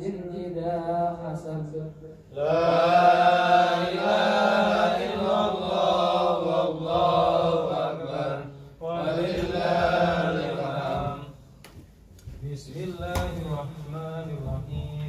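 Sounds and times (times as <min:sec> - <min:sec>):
man chanting recitation: 0:00.0 - 0:11.4, 0:12.2 - 0:15.0.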